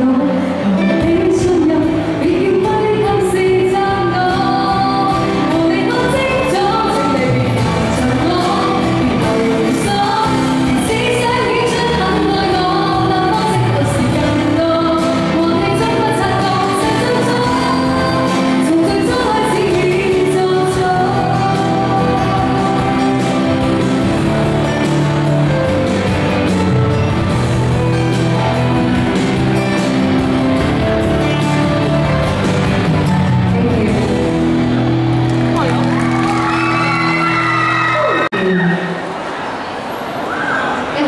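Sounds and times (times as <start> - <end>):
woman singing pop song: 0.0 - 25.7, 32.7 - 34.8.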